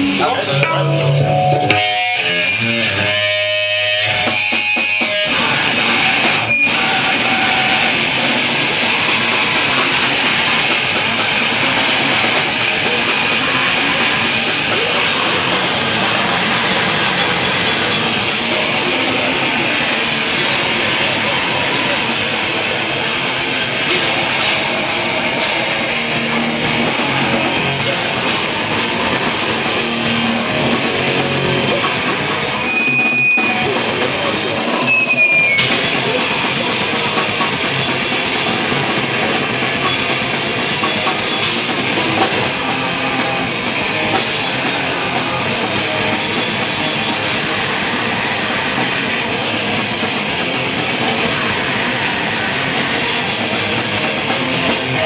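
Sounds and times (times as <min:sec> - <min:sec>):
live rock band playing: 0:00.0 - 0:55.0
high squeal: 0:31.7 - 0:38.5.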